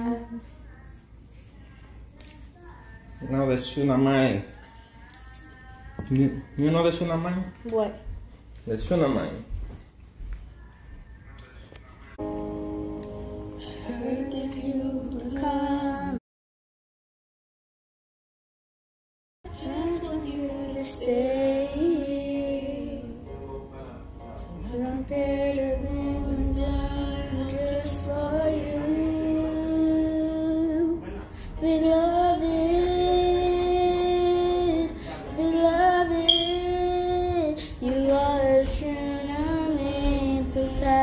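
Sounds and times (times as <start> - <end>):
girl singing slow song: 0.0 - 3.3, 4.5 - 6.6, 10.4 - 16.2, 19.5 - 41.0.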